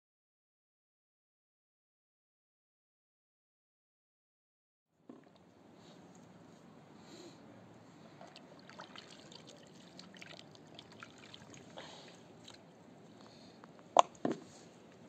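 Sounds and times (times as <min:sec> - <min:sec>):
water splashing in a tub: 0:08.2 - 0:12.7.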